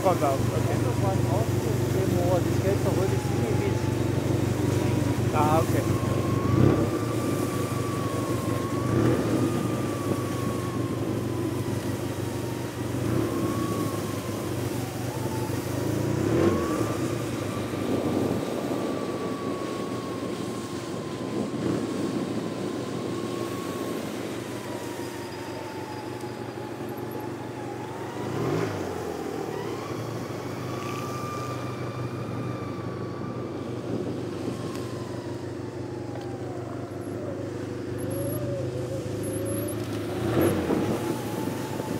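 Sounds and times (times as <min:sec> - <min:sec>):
snowmobile engine whining: 0:00.0 - 0:41.9.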